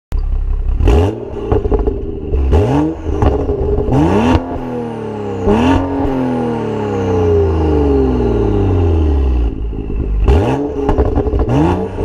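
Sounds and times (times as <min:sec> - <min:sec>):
exhaust cracks: 0:00.2 - 0:04.7, 0:09.4 - 0:12.0
car engine revving: 0:00.4 - 0:12.0.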